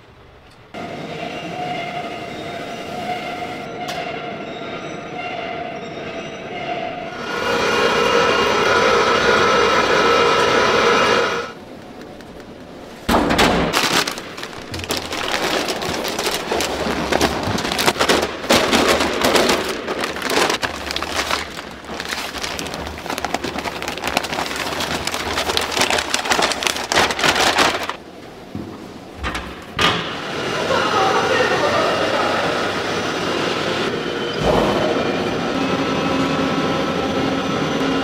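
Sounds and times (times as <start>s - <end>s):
steady machine hum: 7.1s - 12.9s.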